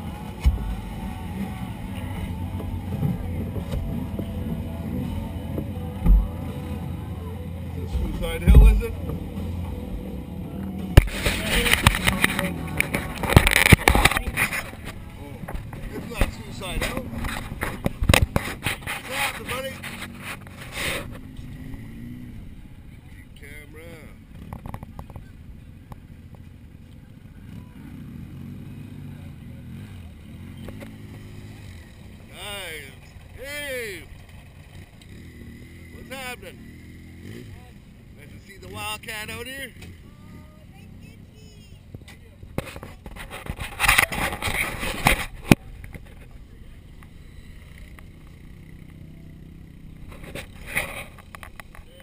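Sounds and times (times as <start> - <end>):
faint voices: 0.0 - 52.0
off-road vehicle engines idling: 0.0 - 52.0
rustling on microphone: 11.0 - 21.3, 42.5 - 46.4.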